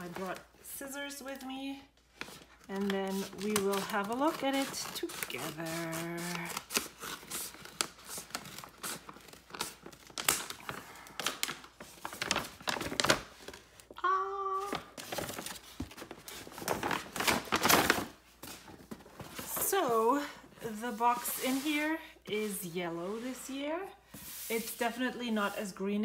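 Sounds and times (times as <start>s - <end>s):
paper crinkling and rustling: 1.1s - 21.9s
scissors cutting paper: 2.8s - 10.5s.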